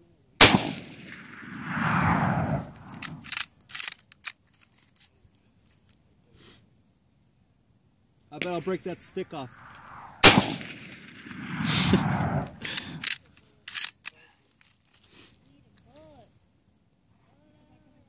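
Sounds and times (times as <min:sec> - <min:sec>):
rifle shot echoing off hills: 0:00.4 - 0:03.3, 0:08.4 - 0:13.1
rifle bolt clicking: 0:02.9 - 0:04.4, 0:12.8 - 0:14.2.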